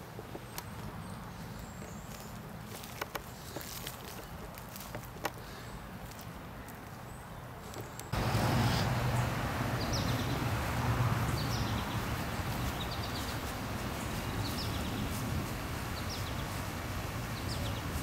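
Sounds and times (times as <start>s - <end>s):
low rumbling background noise: 0.0s - 18.0s
bird chirping: 7.1s - 10.5s, 11.2s - 15.2s, 17.3s - 18.0s.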